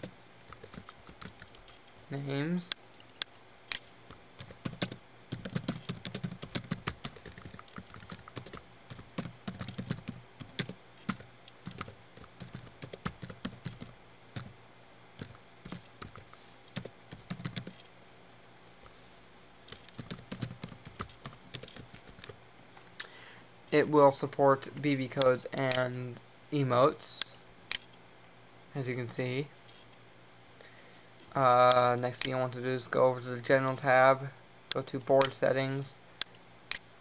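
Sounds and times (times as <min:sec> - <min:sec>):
computer keyboard typing: 0:00.5 - 0:01.7, 0:04.4 - 0:14.5, 0:15.2 - 0:17.8, 0:19.7 - 0:22.4.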